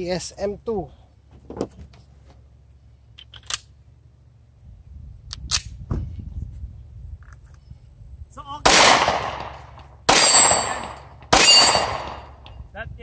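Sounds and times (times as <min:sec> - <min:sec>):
pistol metallic clicks: 0:03.2 - 0:03.7, 0:05.3 - 0:05.8.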